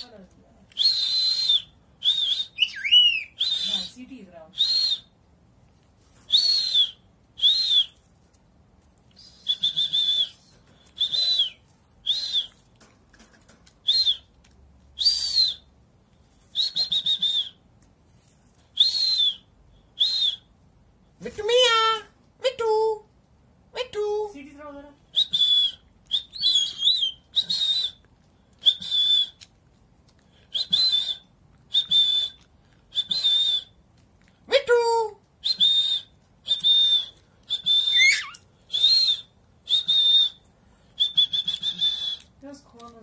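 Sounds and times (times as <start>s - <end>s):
short high whistle notes: 37.6s - 40.4s.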